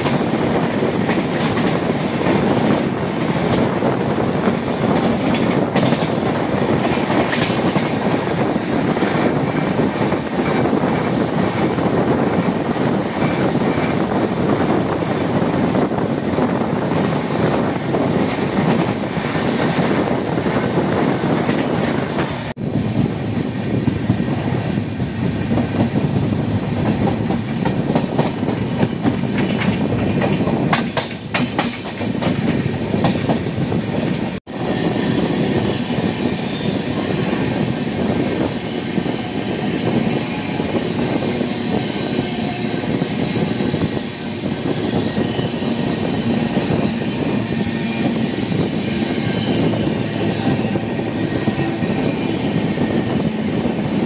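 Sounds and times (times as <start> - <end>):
clickety-clack over rail joints: 0.0 - 34.6
train wheels rumbling: 0.0 - 54.0.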